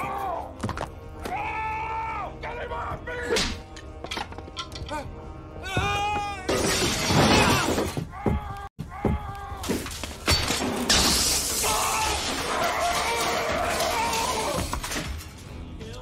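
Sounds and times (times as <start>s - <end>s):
glass shattering and crashing: 6.5s - 8.0s, 9.6s - 15.4s.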